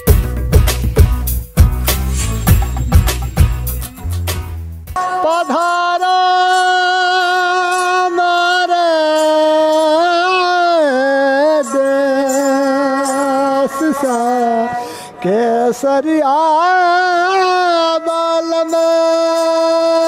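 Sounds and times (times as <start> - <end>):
man singing: 5.0 - 20.0.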